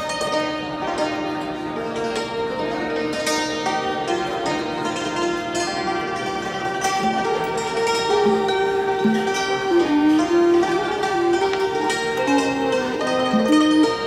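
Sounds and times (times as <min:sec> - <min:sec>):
hammered dulcimer: 0:00.0 - 0:14.0
sliding held melody line: 0:07.0 - 0:14.0.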